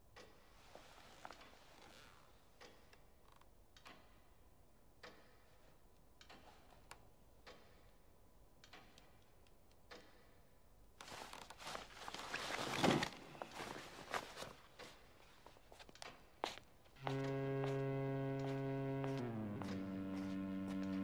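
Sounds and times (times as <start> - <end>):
wooden chair scraping: 11.5 - 14.5.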